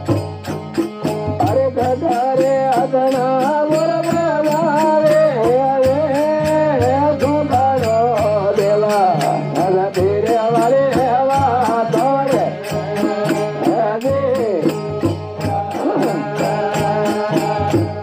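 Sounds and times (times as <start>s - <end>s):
percussion beat: 0.0s - 18.0s
man singing: 0.8s - 18.0s.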